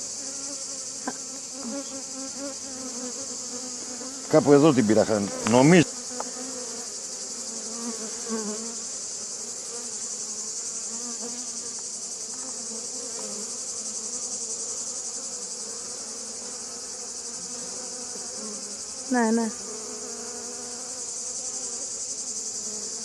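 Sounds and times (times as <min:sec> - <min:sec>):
high-pitched hiss: 0:00.0 - 0:17.3
honeybees buzzing: 0:00.0 - 0:23.0.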